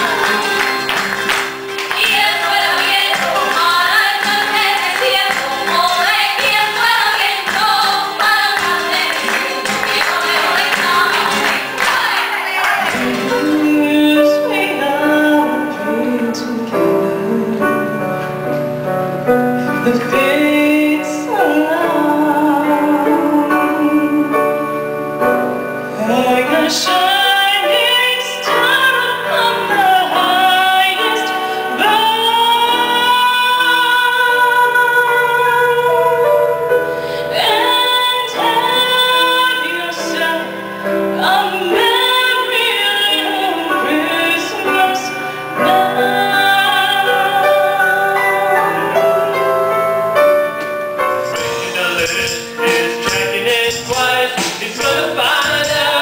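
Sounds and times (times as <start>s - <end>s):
hand-clapping: 0.0s - 13.4s
electric keyboard: 0.0s - 56.0s
flamenco music: 0.0s - 56.0s
woman singing slow song: 1.9s - 18.1s, 19.7s - 24.7s, 26.0s - 49.4s.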